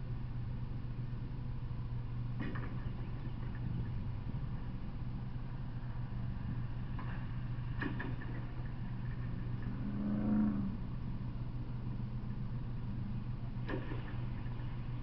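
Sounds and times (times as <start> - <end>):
steady low hum: 0.0 - 15.0
engine revving: 9.5 - 11.0.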